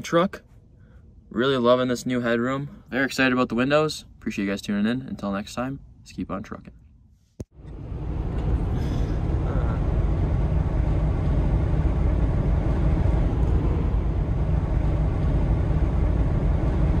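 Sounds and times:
road and engine rumble in car: 0:07.5 - 0:17.0.

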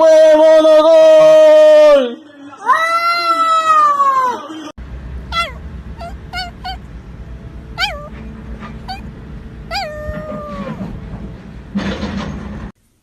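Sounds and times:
low steady rumble: 0:04.8 - 0:11.8
cat meowing: 0:05.3 - 0:06.9, 0:07.7 - 0:11.0
small dog whining: 0:05.3 - 0:06.9, 0:07.7 - 0:11.0.

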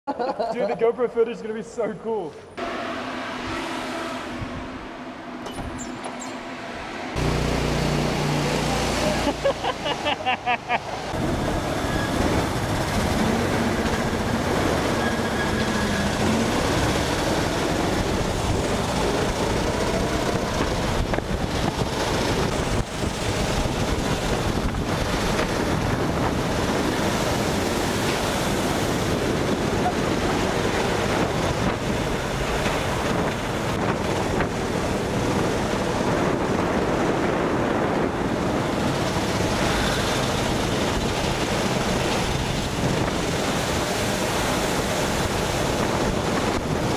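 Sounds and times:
go-kart engines running hard: 0:07.2 - 0:10.0
wind buffeting on microphone: 0:11.0 - 0:46.9.

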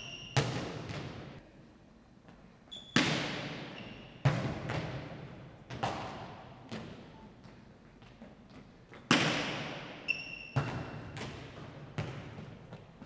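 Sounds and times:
volleyball smacks echoing: 0:03.0 - 0:05.1, 0:09.1 - 0:09.9.

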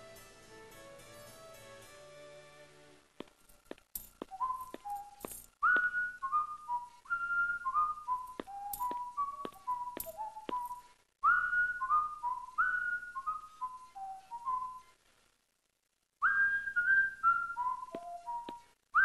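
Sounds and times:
person whistling a tune: 0:04.2 - 0:14.9, 0:16.2 - 0:19.0.

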